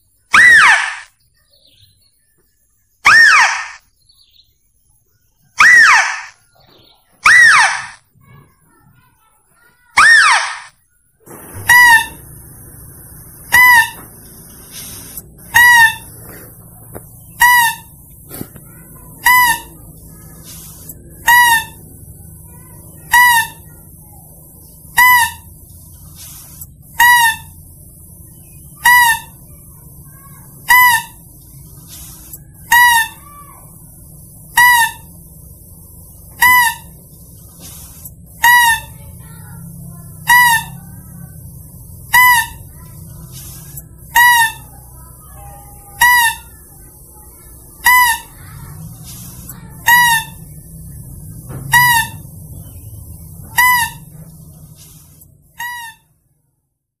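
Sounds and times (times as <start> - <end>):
faint steady hiss: 11.2 - 32.8
short pitched animal lure call: 13.5 - 16.5.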